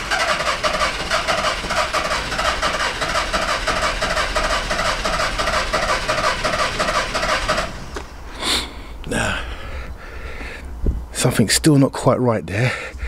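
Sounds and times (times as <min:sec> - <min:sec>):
starter motor cranking diesel engine: 0:00.0 - 0:08.1.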